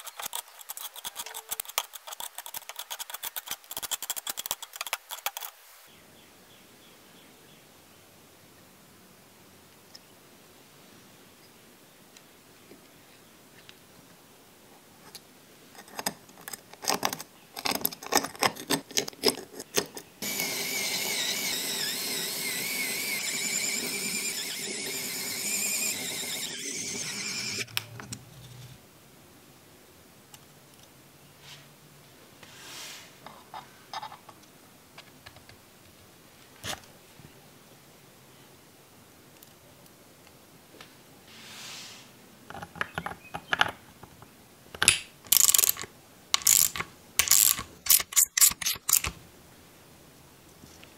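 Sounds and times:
metal parts clicking and knocking: 0.0s - 5.5s, 44.8s - 49.2s
electric screwdriver whirring: 20.2s - 27.8s, 46.4s - 49.2s.

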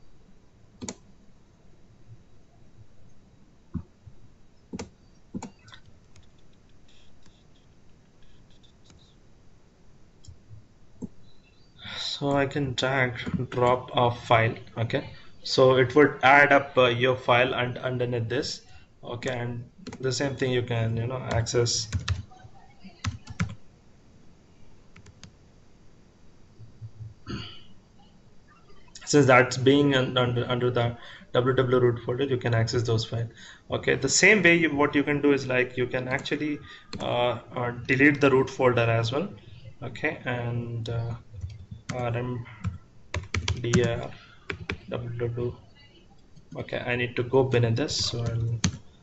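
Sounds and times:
computer mouse clicking: 0.8s - 1.0s, 4.7s - 9.2s, 25.0s - 25.4s, 42.6s - 44.9s.

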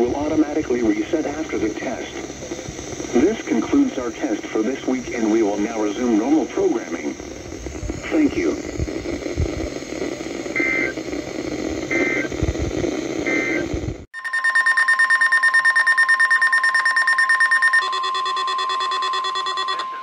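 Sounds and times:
radio static hiss: 0.0s - 14.1s
short data-tone bursts: 10.0s - 11.0s, 11.8s - 12.4s, 13.2s - 20.0s.

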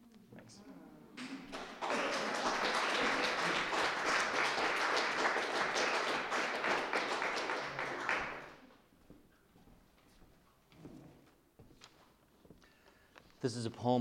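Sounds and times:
audience applauding: 1.2s - 8.6s.

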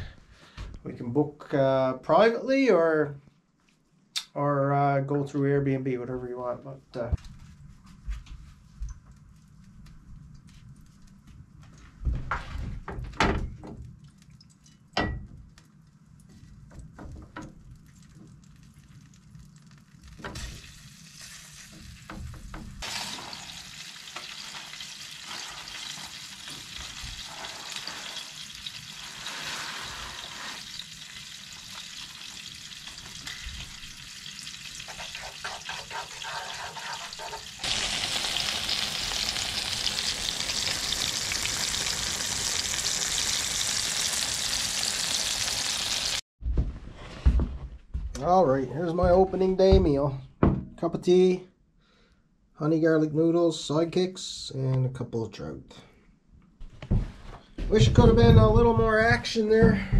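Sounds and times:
fish sizzling in oil: 19.6s - 46.2s.

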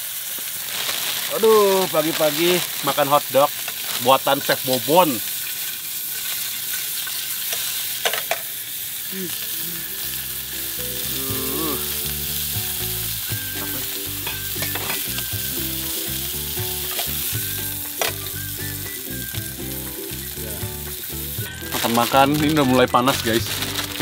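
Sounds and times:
sausages sizzling in a pan: 0.0s - 24.0s.

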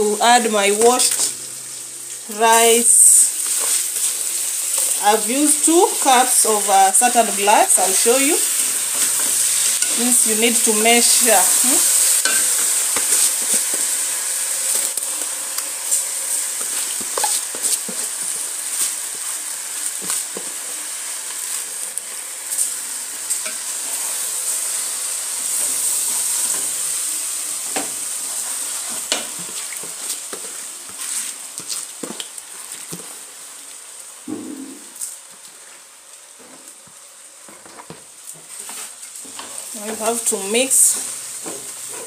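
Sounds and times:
rice sizzling in hot oil: 0.0s - 34.3s, 34.9s - 42.0s
wooden spoon stirring and scraping: 3.4s - 14.8s, 15.9s - 20.6s, 27.6s - 33.1s, 37.5s - 42.0s.

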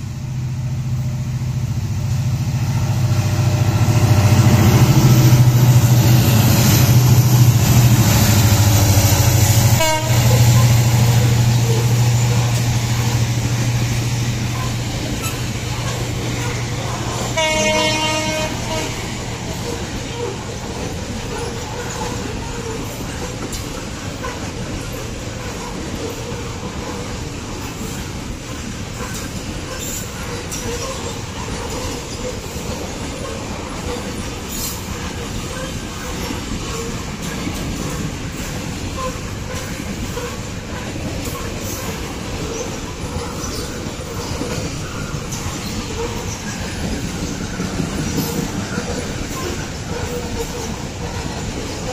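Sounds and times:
train wheels rumbling on rails: 0.0s - 51.9s
wheels clicking over rail joints: 5.6s - 51.9s.

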